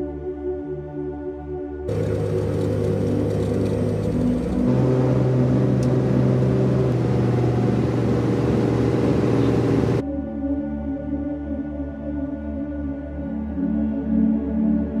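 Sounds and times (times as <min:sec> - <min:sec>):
light aircraft engine and propeller: 0:01.9 - 0:10.0.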